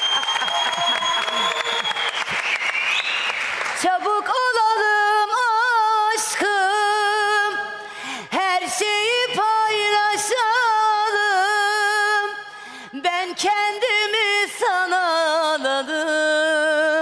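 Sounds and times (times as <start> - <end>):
woman singing alone: 3.8 - 17.0.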